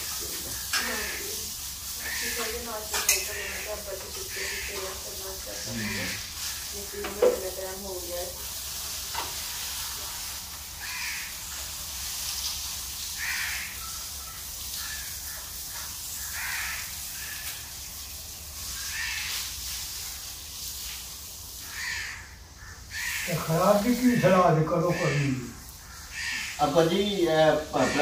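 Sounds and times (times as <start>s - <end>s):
food sizzling: 0.0s - 28.0s
crow cawing: 0.4s - 5.0s, 5.6s - 6.4s, 10.8s - 11.4s, 13.2s - 17.7s, 18.8s - 19.4s, 21.6s - 28.0s.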